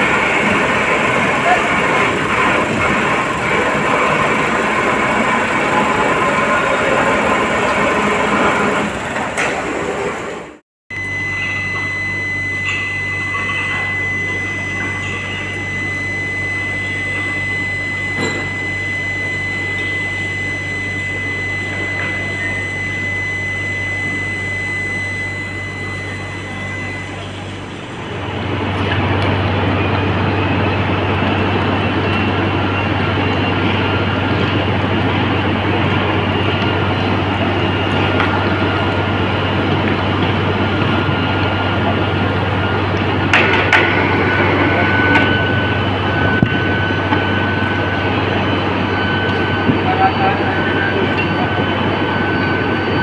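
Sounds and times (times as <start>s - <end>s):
workers' voices: 0.0s - 10.6s, 11.4s - 53.0s
electrical hum: 0.0s - 53.0s
high thin whine: 10.9s - 53.0s.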